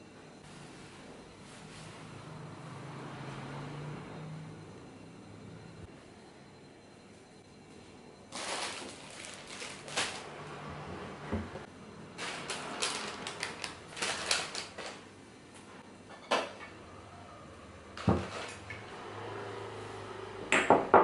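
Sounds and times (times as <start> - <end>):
plastic packets crinkling: 8.3 - 10.5, 12.2 - 15.1.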